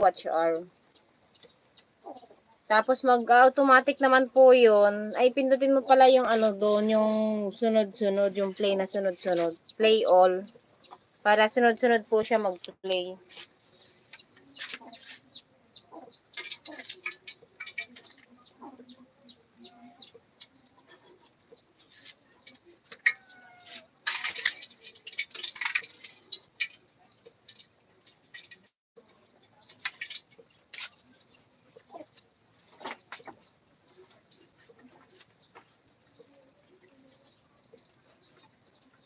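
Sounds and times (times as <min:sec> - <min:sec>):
chickens clucking: 0:01.3 - 0:02.7, 0:13.3 - 0:24.0.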